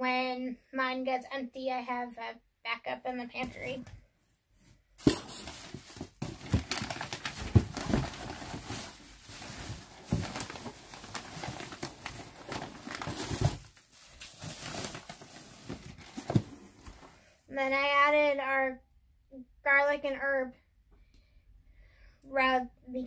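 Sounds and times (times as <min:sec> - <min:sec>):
items knocking in a box: 0:05.0 - 0:08.8, 0:09.9 - 0:10.6
packaging rustling and crinkling: 0:05.0 - 0:17.2.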